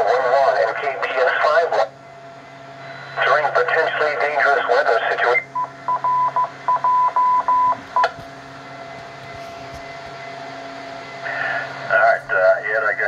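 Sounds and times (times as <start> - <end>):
radio channel hiss: 0.0 - 1.9, 2.8 - 5.5, 11.2 - 13.0
low hum: 0.0 - 13.0
radio repeater beeps: 2.8 - 8.2.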